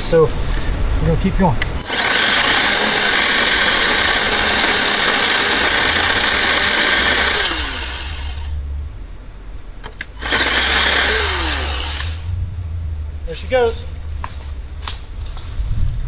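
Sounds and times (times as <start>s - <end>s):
electric chainsaw cutting wood: 1.8s - 8.6s, 10.1s - 12.3s.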